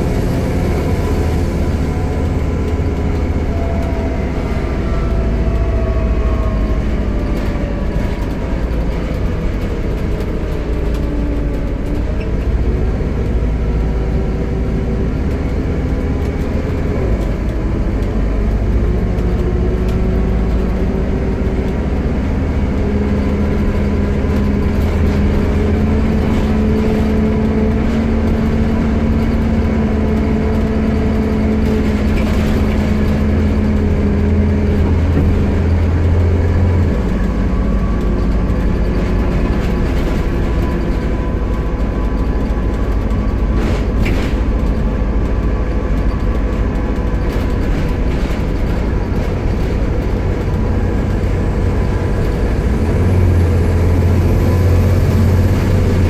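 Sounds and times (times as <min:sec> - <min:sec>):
bus engine rumble: 0:00.0 - 0:56.0.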